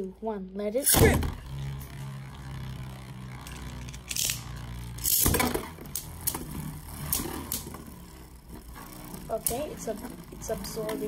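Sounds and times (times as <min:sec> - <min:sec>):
spinning tops whirring: 0:00.6 - 0:11.0
spinning tops clashing: 0:03.4 - 0:06.5.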